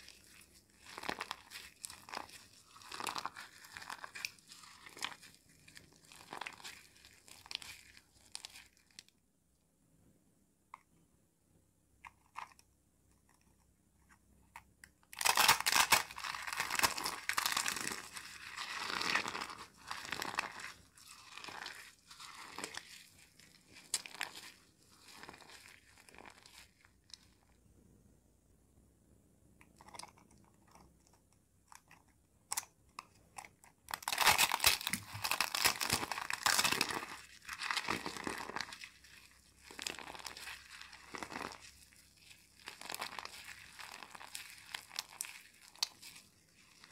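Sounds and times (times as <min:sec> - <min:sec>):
soap balls crunching in hands: 0:00.0 - 0:09.1, 0:15.0 - 0:27.4, 0:33.6 - 0:46.9.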